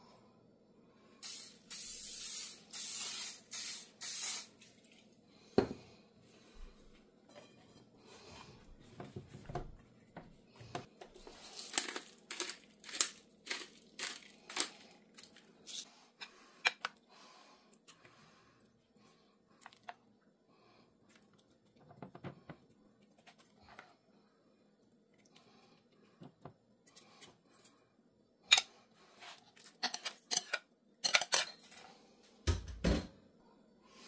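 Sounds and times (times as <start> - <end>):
tortilla crinkling in a frying pan: 11.1 - 15.8.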